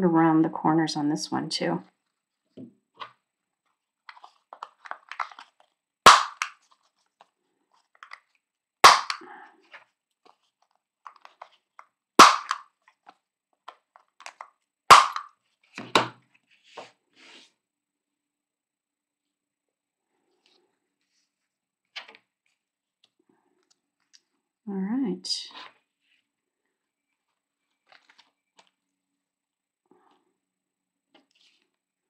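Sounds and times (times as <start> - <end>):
paper rustling: 3.0 - 5.8, 27.2 - 28.8.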